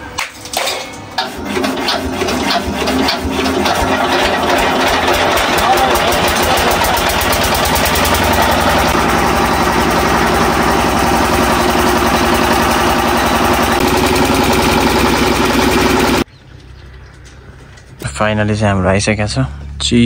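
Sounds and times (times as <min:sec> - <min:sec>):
cane juice crusher rollers: 0:00.4 - 0:16.2
diesel engine running: 0:01.1 - 0:16.3.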